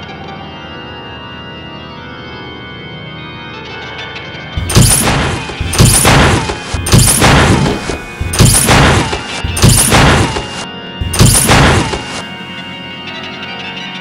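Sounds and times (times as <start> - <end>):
heavy percussive hits: 4.6 - 12.2
steady droning tone: 4.6 - 13.9.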